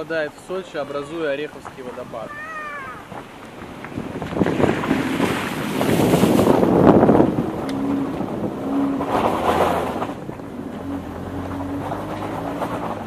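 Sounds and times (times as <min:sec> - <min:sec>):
car engine hum: 0:00.0 - 0:13.0
water splashing around car: 0:00.0 - 0:13.0.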